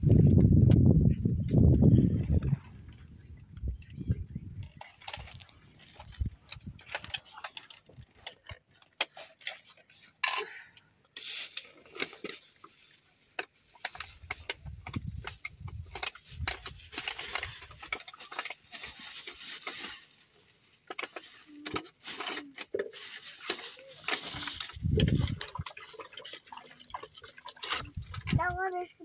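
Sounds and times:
rustling: 11.2 - 26.1.

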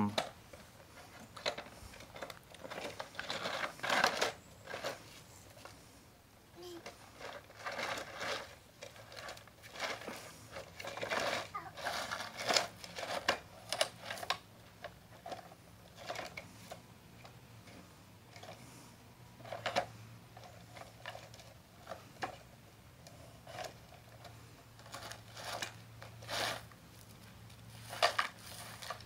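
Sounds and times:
toy excavator scraping gravel: 0.1 - 6.0, 6.6 - 16.8, 19.4 - 29.0
small stones crunching and rattling: 1.0 - 5.1, 7.2 - 14.4.

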